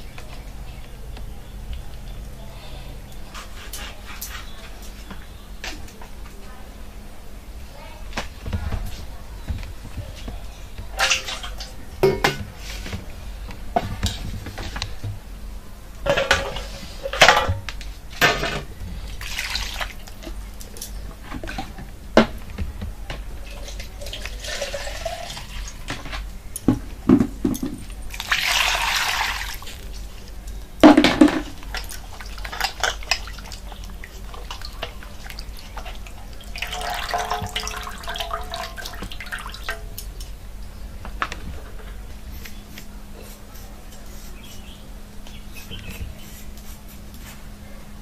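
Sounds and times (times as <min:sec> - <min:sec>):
water sloshing and dripping: 0:09.9 - 0:12.5, 0:18.2 - 0:22.3, 0:23.4 - 0:26.1, 0:27.5 - 0:40.3
knocks against metal bowl: 0:12.0 - 0:12.5.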